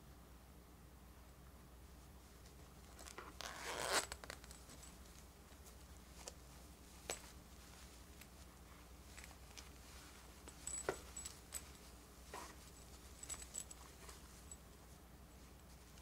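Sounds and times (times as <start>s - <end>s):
zipper being pulled open: 3.0s - 4.6s.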